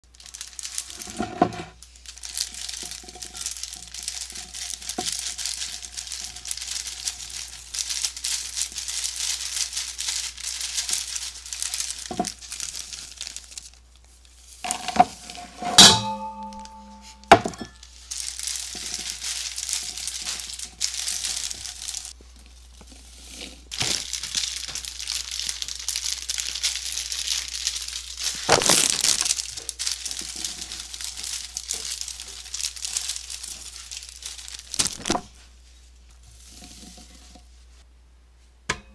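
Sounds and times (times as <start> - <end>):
plastic bag crinkling: 0.0 - 15.4, 16.2 - 35.7
glass dish clinking: 15.8 - 17.8.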